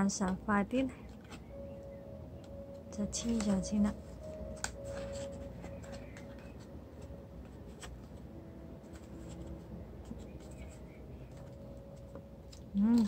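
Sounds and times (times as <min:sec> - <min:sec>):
paper rustling: 0:03.2 - 0:12.2.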